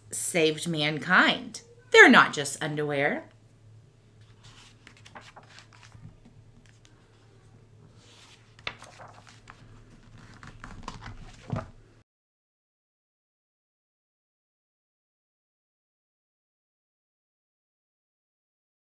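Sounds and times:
book pages turning: 4.2 - 7.3, 7.9 - 11.8.

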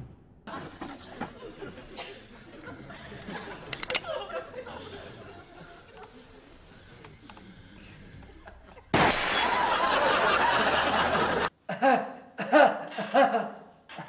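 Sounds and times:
studio audience laughter: 0.5 - 7.0, 8.0 - 11.5
light bulb shattering: 8.9 - 9.9.

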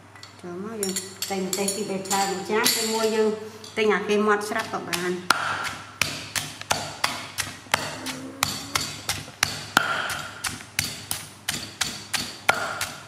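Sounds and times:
pestle pounding in stone mortar: 4.4 - 13.0.

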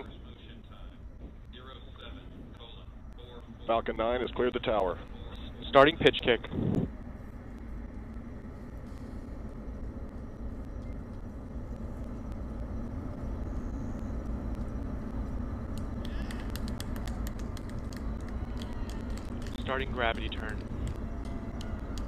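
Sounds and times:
rapid crackle of rocket engines: 0.0 - 22.0
rocket engines low rumble: 0.0 - 22.0.

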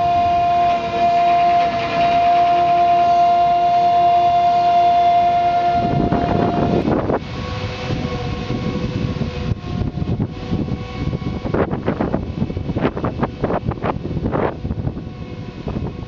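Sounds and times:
low rumbling noise: 0.0 - 16.0
transport platform drive whining: 0.0 - 16.0
wind buffeting microphone: 0.0 - 16.0.

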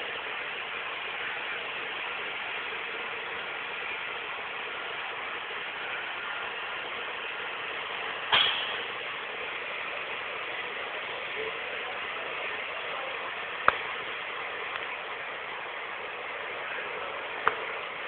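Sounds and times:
vehicle noise: 0.0 - 18.0
sharp bang: 8.3 - 8.9.

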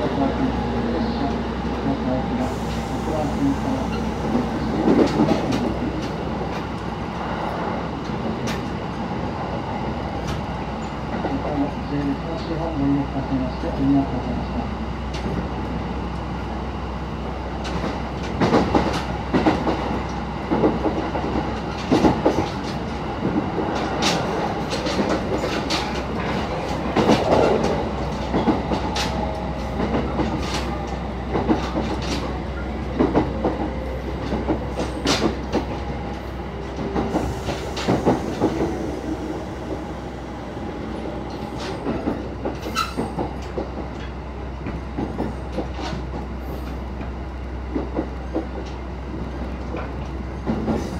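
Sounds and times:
train running gear rumble: 0.0 - 50.9
wheels clacking over rail joints: 17.7 - 38.8.

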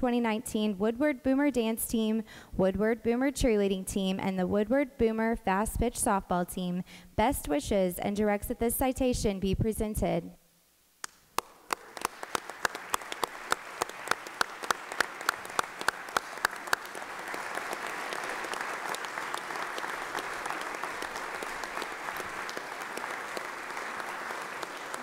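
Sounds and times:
nearby sharp claps: 11.0 - 25.0
crowd applauding: 11.4 - 25.0.

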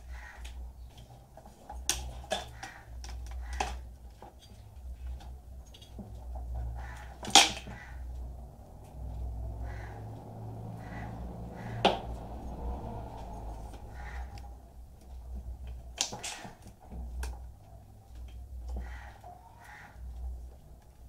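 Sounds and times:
low steady hum: 3.0 - 16.0.

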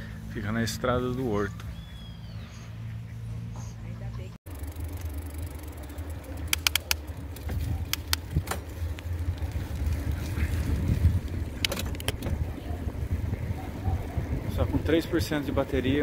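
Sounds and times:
sharp clicks: 6.4 - 7.2, 7.8 - 9.1, 11.2 - 12.3
wind buffeting microphone: 7.1 - 16.0.

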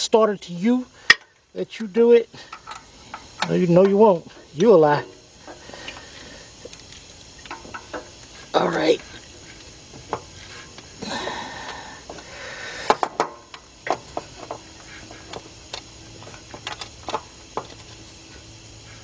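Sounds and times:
ratchet clicking: 2.4 - 4.0, 11.6 - 18.2.

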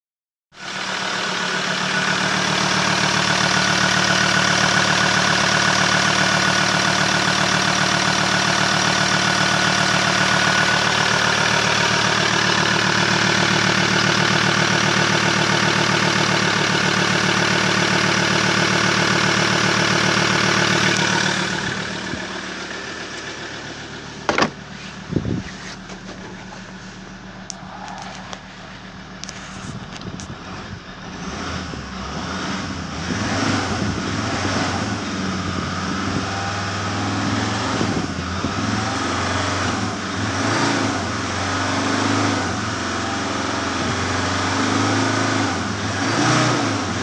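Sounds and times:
diesel engine idling: 0.6 - 47.0
sharp knocks: 24.3 - 24.6.

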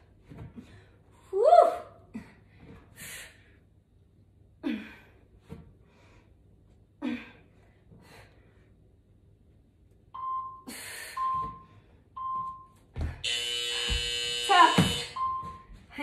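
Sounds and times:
woman breathing heavily: 2.0 - 3.8, 4.6 - 9.0, 10.6 - 12.1.

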